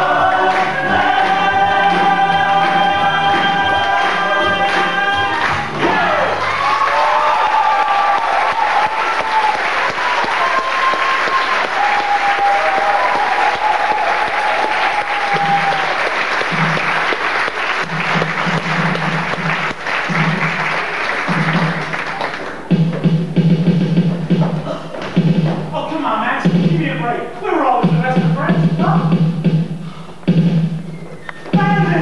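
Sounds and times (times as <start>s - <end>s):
audience applauding: 0.0s - 22.7s.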